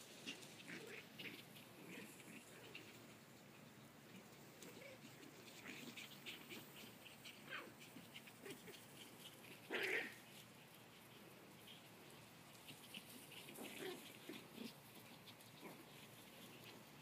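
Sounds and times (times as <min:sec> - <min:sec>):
small dog barking: 0:04.7 - 0:08.8, 0:09.6 - 0:10.2.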